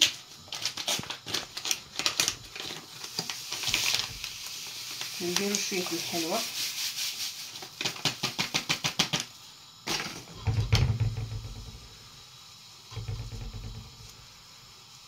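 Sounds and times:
sieve knocking on pot: 9.9 - 11.9, 12.9 - 14.1
sieve rattling: 9.9 - 11.9.

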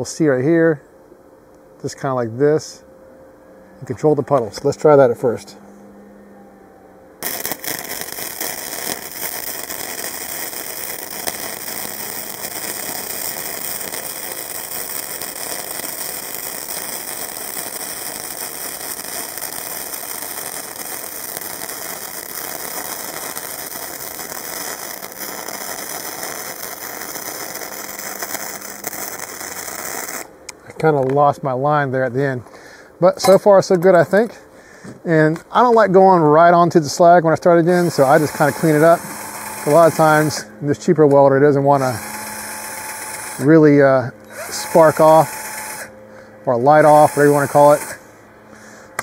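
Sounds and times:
welder arc crackling: 7.2 - 31.2, 36.9 - 45.9, 46.5 - 48.0.

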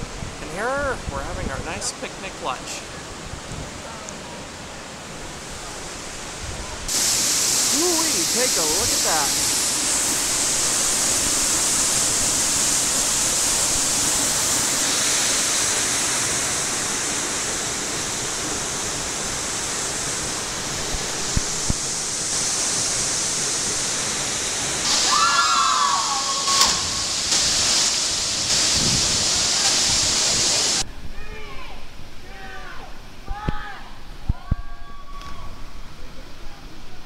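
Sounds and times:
waterfall rushing: 1.6 - 30.9.

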